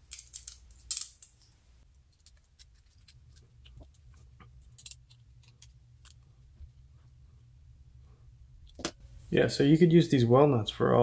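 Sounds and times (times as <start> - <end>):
small parts clicking and tapping: 0.0 - 6.3
low steady hum: 0.0 - 11.0.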